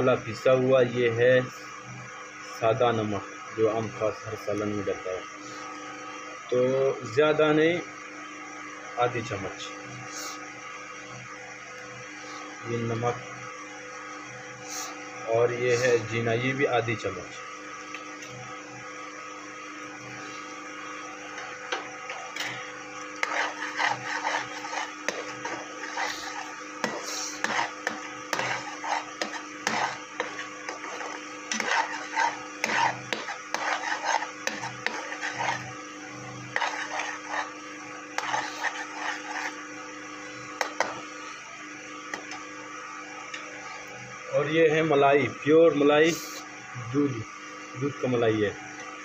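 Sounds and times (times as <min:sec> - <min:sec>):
steady background hum: 0:00.0 - 0:49.0
metal ladle scraping pan: 0:23.2 - 0:35.7, 0:36.5 - 0:37.6, 0:38.2 - 0:39.6.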